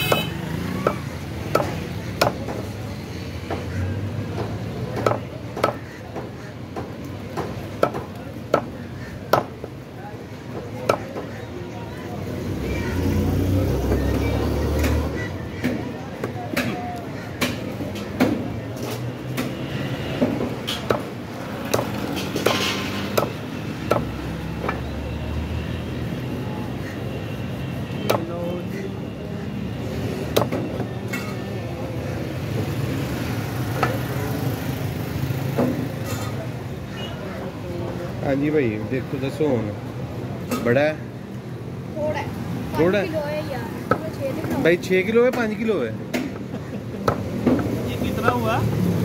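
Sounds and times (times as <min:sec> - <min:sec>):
cleaver chopping on wooden block: 0:00.1 - 0:02.7, 0:04.4 - 0:09.6, 0:20.2 - 0:24.8.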